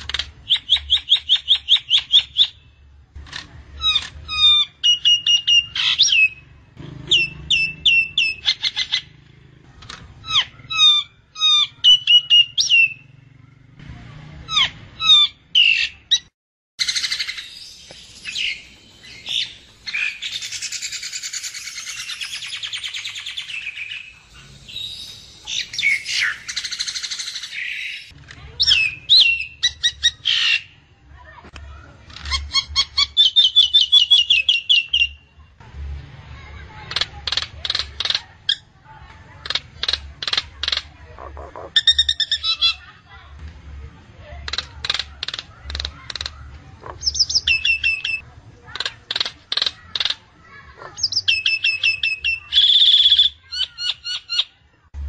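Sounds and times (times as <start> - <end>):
bird harsh raspy chatter: 0.0 - 13.7, 14.5 - 31.3, 32.0 - 35.4, 36.4 - 43.1, 44.2 - 54.7
myna calling: 39.4 - 42.8.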